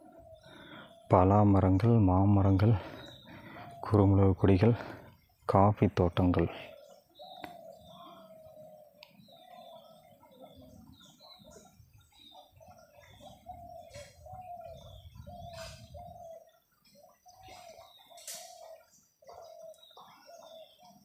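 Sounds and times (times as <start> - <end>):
birds calling wavering notes: 0.0 - 21.0
high bird chirps: 6.8 - 21.0.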